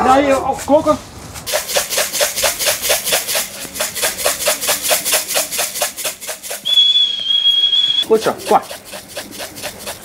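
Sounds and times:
grain rattling in a tin: 0:01.5 - 0:07.0
high-pitched whistle: 0:06.6 - 0:08.1.

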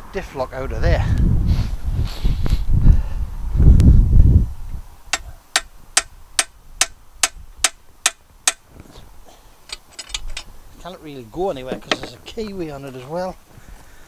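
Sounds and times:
wind buffeting microphone: 0:00.0 - 0:07.8
hammer tapping metal: 0:05.2 - 0:08.6.

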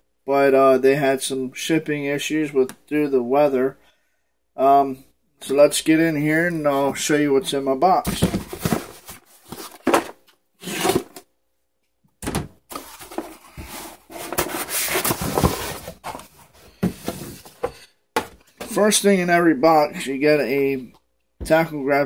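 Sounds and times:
cardboard scraping and rustling: 0:08.0 - 0:11.2, 0:12.7 - 0:18.8.

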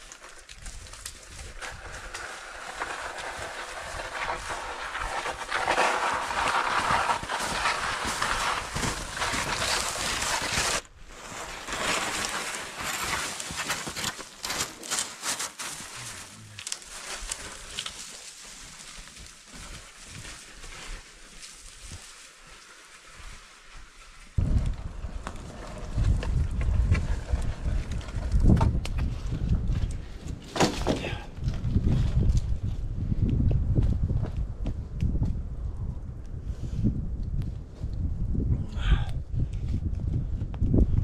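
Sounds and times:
footsteps crunching in snow: 0:00.1 - 0:24.4.

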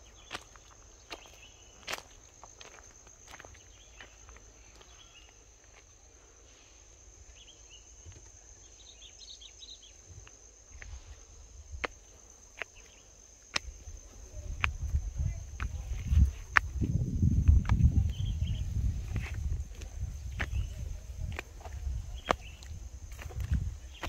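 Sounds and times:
crickets trilling: 0:00.0 - 0:24.0.

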